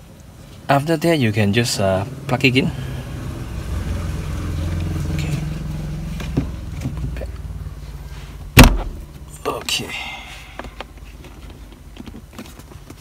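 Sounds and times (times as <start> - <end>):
car engine idling: 1.8 - 11.0.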